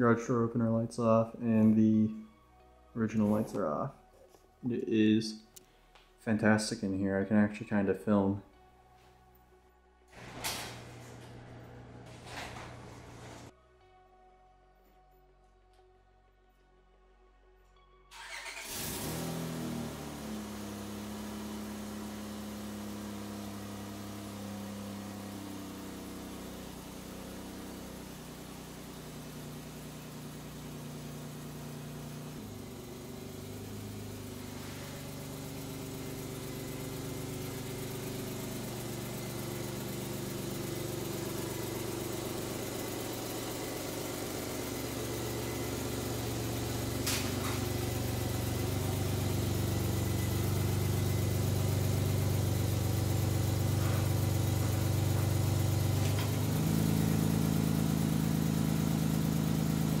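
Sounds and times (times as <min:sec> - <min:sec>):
minivan engine running: 0:10.2 - 0:13.5, 0:18.2 - 1:00.0.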